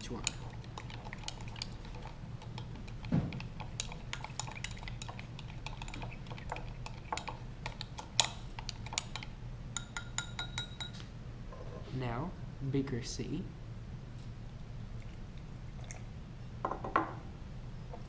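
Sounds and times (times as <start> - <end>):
spoon tapping glass beaker: 9.8 - 11.0.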